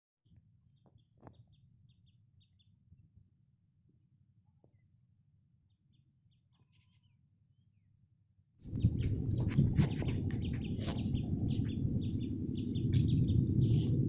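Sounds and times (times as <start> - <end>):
faint bird chirping: 5.6 - 8.0, 8.7 - 14.0
low background rumble: 8.7 - 14.0.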